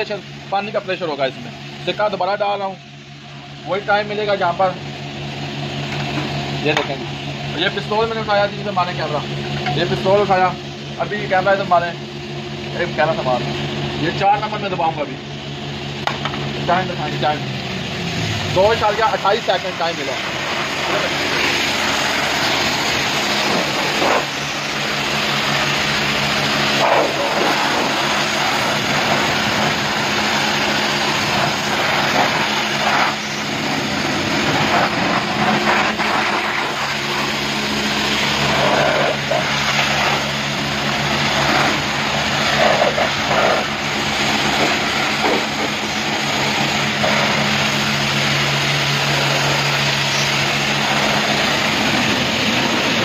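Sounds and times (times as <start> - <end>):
steady low hum: 0.0 - 53.0
high-pressure water spray hiss: 18.5 - 53.0.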